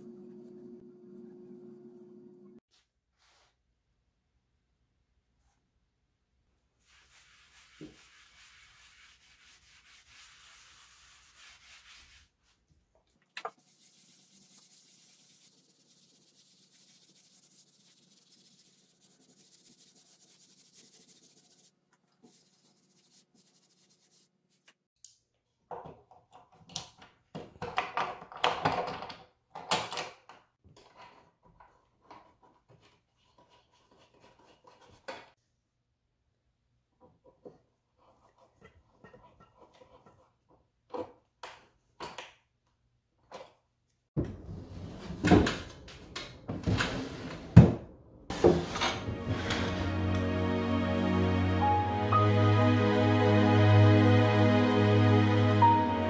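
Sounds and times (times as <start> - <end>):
cloth rubbing on wood: 6.8 - 12.6, 13.5 - 24.8.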